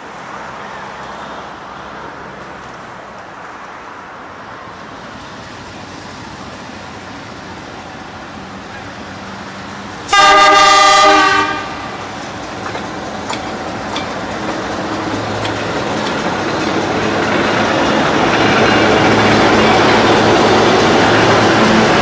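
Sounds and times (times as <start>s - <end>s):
train wheels clattering on rails: 6.1s - 22.0s
locomotive horn chord: 10.1s - 12.0s.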